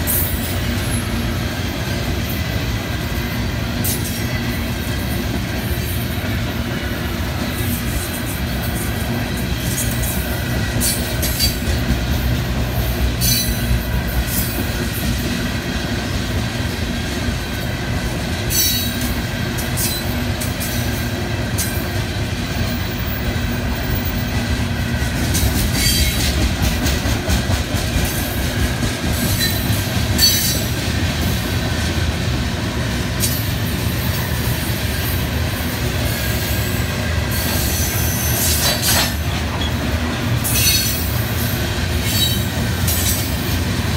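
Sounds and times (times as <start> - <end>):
train wheels rumbling on rail: 0.0 - 43.9.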